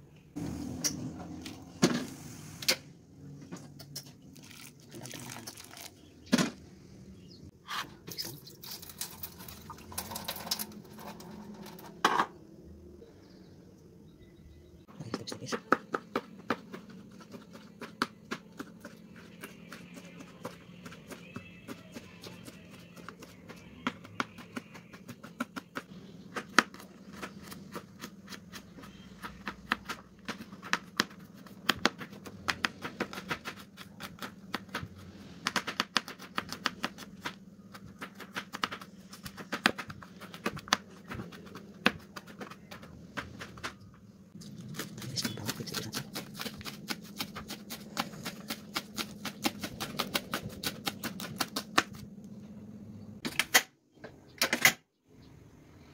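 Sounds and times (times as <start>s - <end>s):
steady low hum: 8.8s - 53.2s.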